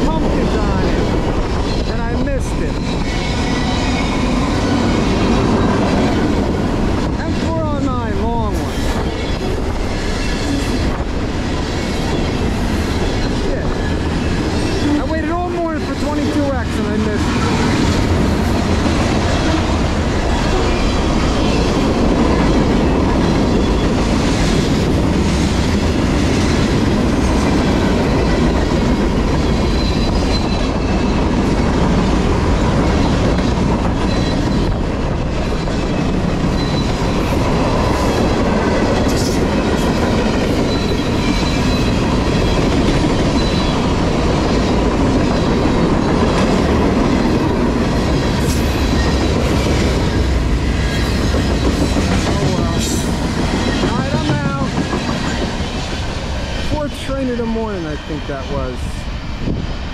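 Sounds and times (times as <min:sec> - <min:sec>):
freight train rumbling past: 0:00.0 - 0:59.9
high wheel squeal: 0:02.7 - 0:05.8, 0:29.5 - 0:31.2, 0:34.0 - 0:34.8, 0:35.5 - 0:37.2, 0:40.6 - 0:43.9
wheels clacking over rail joints: 0:02.7 - 0:57.5.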